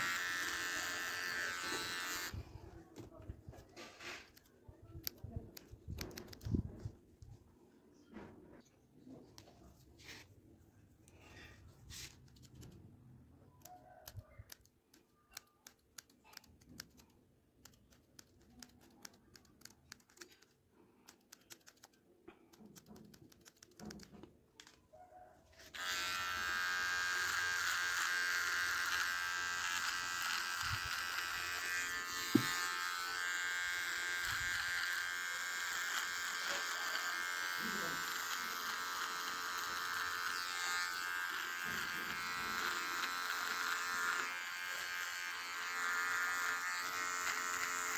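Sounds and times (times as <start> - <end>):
electric hair trimmer buzzing: 0.0 - 2.4, 25.6 - 47.9
scissors snipping hair: 4.2 - 6.7, 12.0 - 12.8, 13.6 - 24.7, 25.6 - 47.9.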